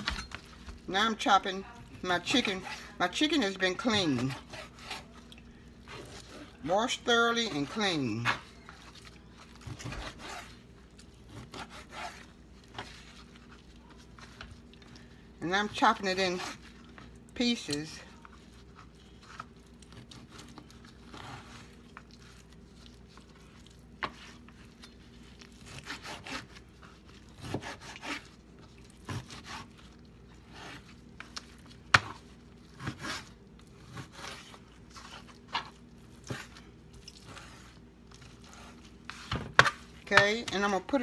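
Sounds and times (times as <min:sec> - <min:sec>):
knife slicing and scraping: 0:03.9 - 0:05.2, 0:07.4 - 0:10.6, 0:11.2 - 0:14.4, 0:18.6 - 0:40.4.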